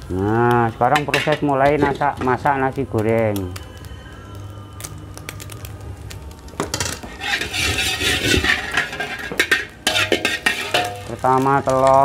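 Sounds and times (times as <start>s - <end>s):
food sizzling in hot oil: 0.0s - 12.0s
metal ladle clinking on wok: 7.3s - 11.2s.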